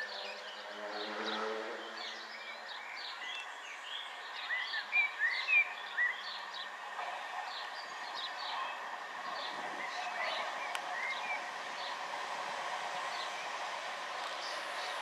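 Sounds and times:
songbirds chirping: 0:00.0 - 0:15.0
steady outdoor hiss: 0:00.0 - 0:15.0
electric train running: 0:04.1 - 0:15.0.

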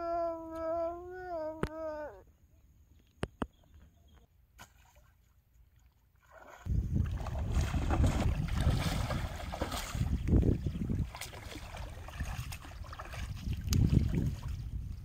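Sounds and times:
fish thrashing in water: 0:06.3 - 0:14.6
wind rumbling on microphone: 0:06.6 - 0:15.0.

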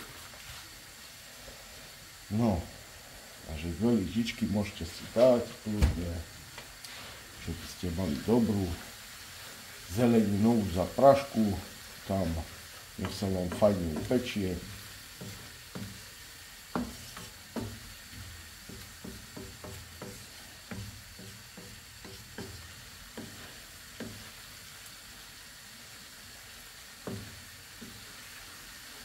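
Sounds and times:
low frying sizzle: 0:00.0 - 0:29.0
wooden spatula scraping a pan: 0:06.9 - 0:24.6, 0:27.0 - 0:29.0.

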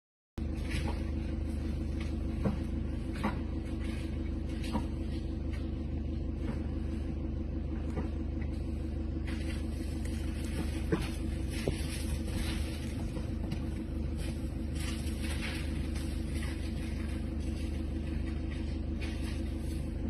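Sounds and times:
vehicle engine idling: 0:00.4 - 0:20.0
branches cracking: 0:08.4 - 0:20.0.

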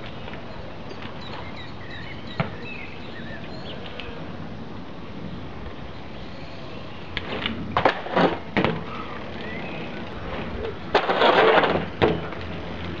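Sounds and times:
bike knocking and clattering: 0:07.2 - 0:09.6, 0:10.6 - 0:13.0
bike scraping on gravel: 0:07.2 - 0:13.0.

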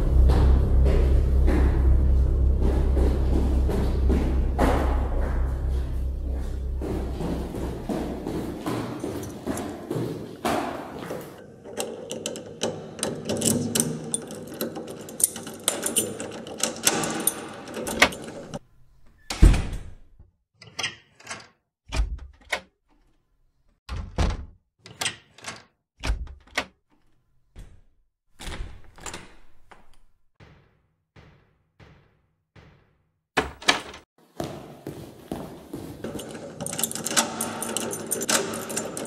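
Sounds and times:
dense clattering and rumbling: 0:00.0 - 0:09.6.

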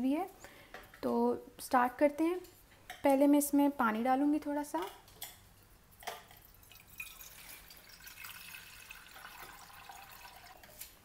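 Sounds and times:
water trickling into a pot: 0:06.0 - 0:11.0.

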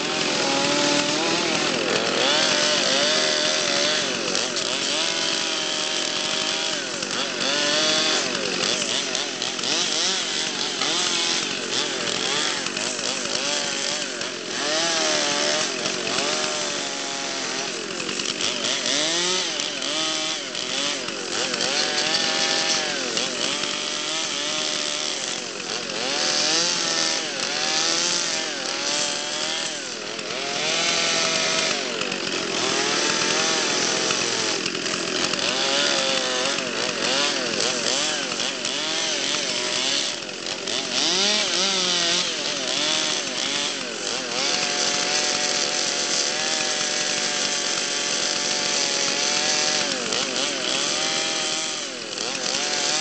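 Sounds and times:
chainsaw cutting log: 0:00.0 - 0:53.0.

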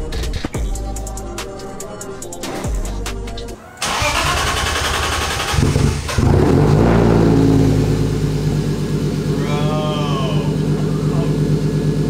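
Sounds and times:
car engine through exhaust: 0:03.8 - 0:12.0.

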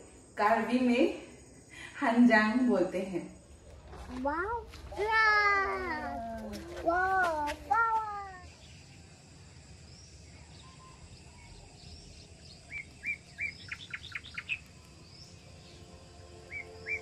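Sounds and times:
faint background hiss: 0:00.0 - 0:17.0
songbirds calling: 0:03.6 - 0:17.0.

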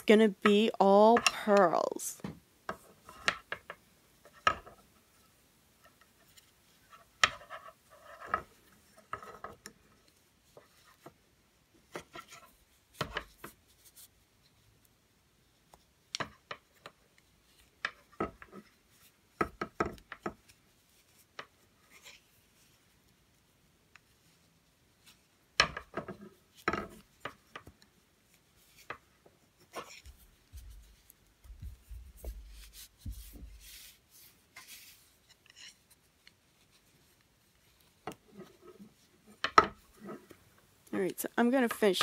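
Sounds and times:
knitting needles clicking: 0:00.0 - 0:02.1
soft rubbing of yarn: 0:04.1 - 0:11.2, 0:11.8 - 0:16.0, 0:20.3 - 0:25.5, 0:26.2 - 0:42.0.

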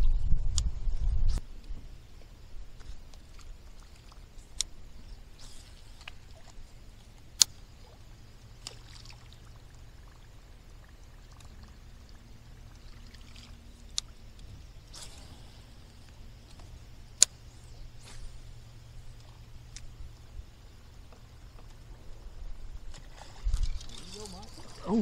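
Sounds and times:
sharp clicks: 0:07.4 - 0:07.6
water gurgling and splashing: 0:08.6 - 0:13.9.

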